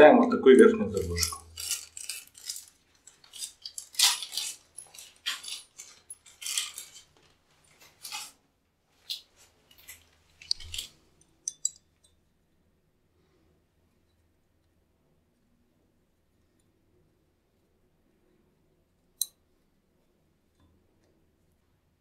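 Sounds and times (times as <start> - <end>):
plastic bag rustling: 0.9 - 11.0
metal fittings clinking: 1.0 - 7.1, 9.7 - 12.2.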